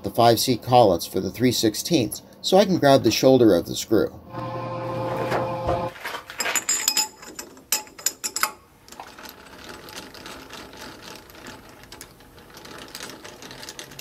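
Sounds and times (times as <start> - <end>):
steel collets clinking: 6.2 - 14.0
fast light mechanical rattle: 7.0 - 14.0.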